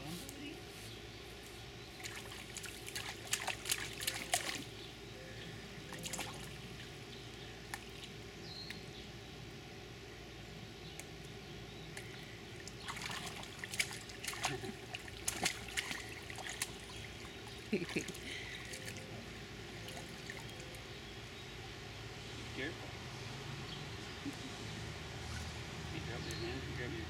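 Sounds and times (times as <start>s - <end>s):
water splashing in paddling pool: 2.0s - 4.9s, 5.8s - 7.0s, 12.1s - 20.9s.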